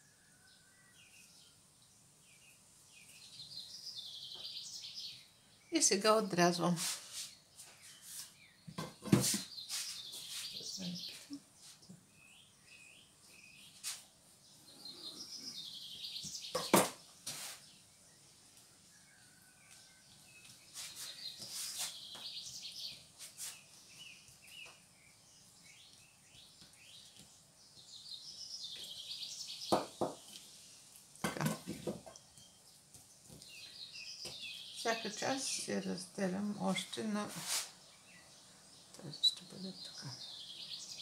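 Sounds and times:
bird chirping and twittering: 2.2 - 11.4, 12.0 - 18.4, 19.0 - 30.7, 31.7 - 41.0
knocks on a table: 16.6 - 17.0, 29.7 - 30.2.

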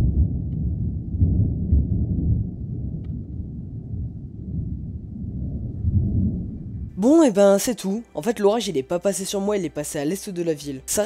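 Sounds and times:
distant thunder rumbling: 0.0 - 7.0.

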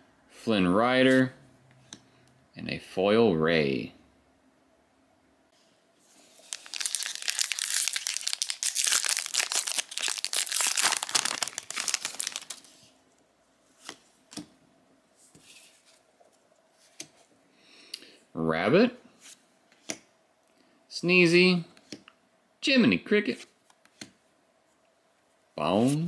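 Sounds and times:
plastic wrapper crinkling and tearing: 6.3 - 12.9.

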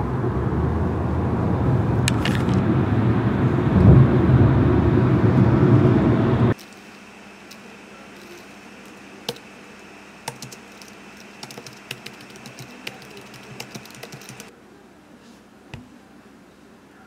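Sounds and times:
low background hum: 0.0 - 17.0
keyboard typing: 10.2 - 14.5.

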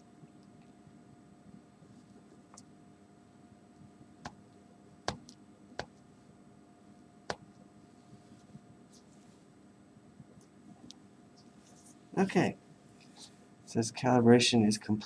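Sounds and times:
faint room hum: 0.0 - 15.0
fingertip tapping touchscreen: 5.1 - 6.0, 7.3 - 7.5.

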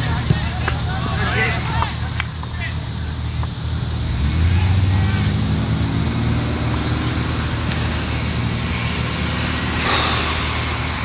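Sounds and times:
outdoor noise: 0.0 - 11.0
sharp thump: 9.8 - 11.0.

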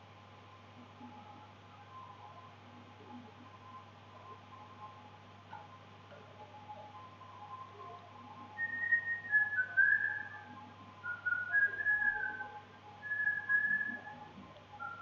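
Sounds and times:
faint steady hum: 0.0 - 15.0
person whistling a tune: 11.1 - 14.1.

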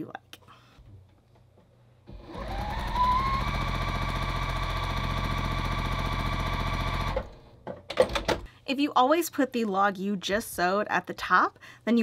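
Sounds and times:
sewing machine stitching: 2.1 - 7.4.

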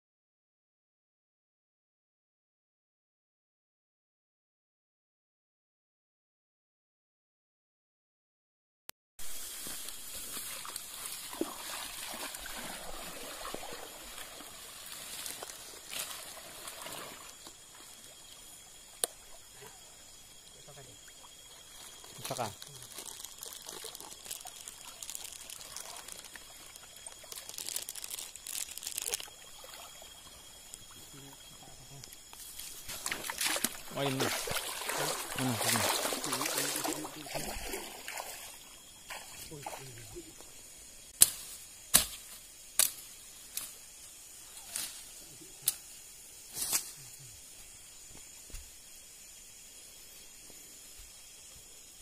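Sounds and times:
leaves rustling: 9.3 - 17.7, 21.9 - 29.7
water pouring and splashing: 9.3 - 18.1, 21.2 - 31.1, 32.8 - 39.9.

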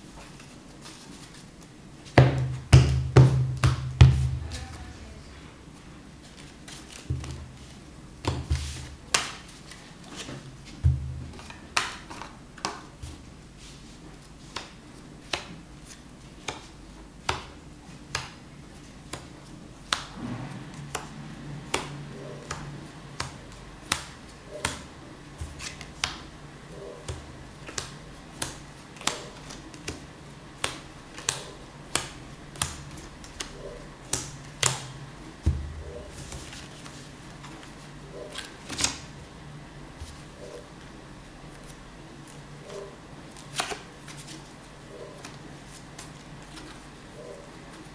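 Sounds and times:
playing cards snapping and tapping: 8.2 - 10.4, 11.3 - 13.2, 14.5 - 18.4, 19.0 - 20.1, 21.7 - 26.3, 27.0 - 37.7, 38.3 - 39.1, 43.4 - 44.5.

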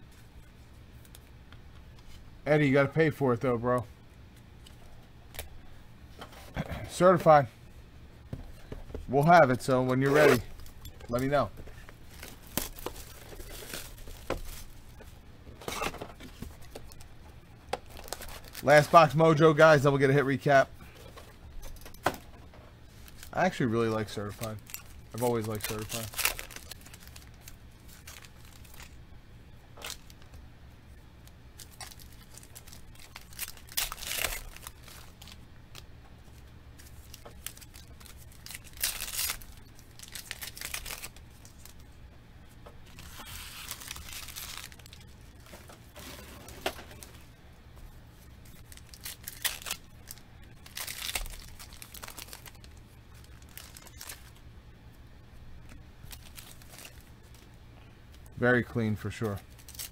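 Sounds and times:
steady low hum: 0.0 - 59.9
cards shuffling and rustling: 8.4 - 17.1, 22.8 - 29.0, 31.0 - 41.8, 42.5 - 47.3, 48.2 - 54.4, 55.7 - 57.5
foil wrapper tearing and crinkling: 12.0 - 14.8, 17.8 - 19.1, 23.0 - 29.0, 31.6 - 35.9, 36.8 - 41.8, 42.9 - 47.2, 48.4 - 54.4, 56.0 - 57.4, 59.1 - 59.9.

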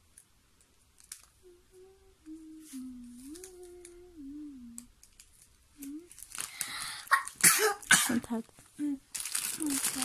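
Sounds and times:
candy wrappers crinkling: 0.6 - 1.4, 4.7 - 10.0
child humming a tune: 1.4 - 4.9, 5.8 - 6.2.

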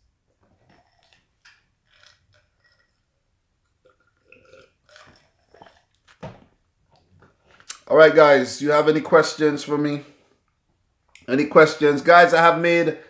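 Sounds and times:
person swallowing: 3.7 - 6.2.

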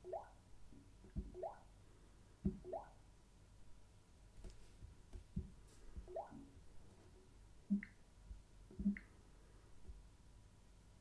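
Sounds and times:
water-drop touch blips: 8.8 - 9.1.

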